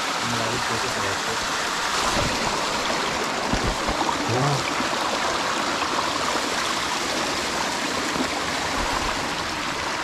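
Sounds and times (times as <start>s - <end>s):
stream running over rock: 0.0s - 10.0s.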